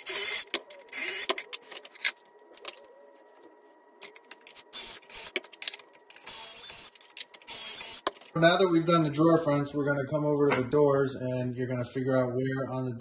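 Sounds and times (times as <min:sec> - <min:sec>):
cordless drill boring through wood: 0:00.0 - 0:01.4, 0:04.7 - 0:05.3, 0:06.3 - 0:06.9, 0:07.5 - 0:08.1.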